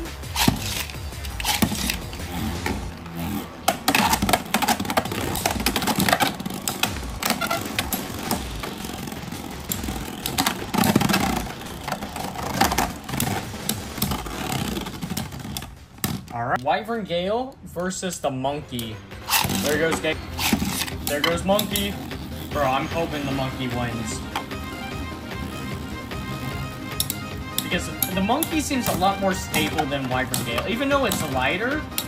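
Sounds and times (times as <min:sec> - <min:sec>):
spinning tops whirring: 0:00.0 - 0:16.1, 0:19.2 - 0:32.0
sharp clicks and knocks of tops colliding: 0:00.0 - 0:16.7, 0:26.1 - 0:32.0.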